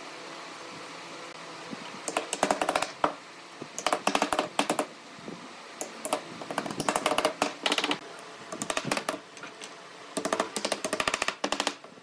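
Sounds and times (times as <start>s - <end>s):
hammer tapping wooden slats: 2.1s - 3.2s, 3.8s - 4.9s, 5.8s - 8.0s, 8.6s - 9.2s, 10.2s - 11.9s.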